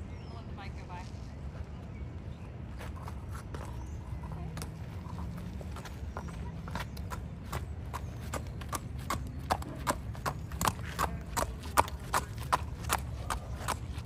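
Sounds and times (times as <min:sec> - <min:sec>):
horse hoofbeats on pavement: 0:03.0 - 0:14.0.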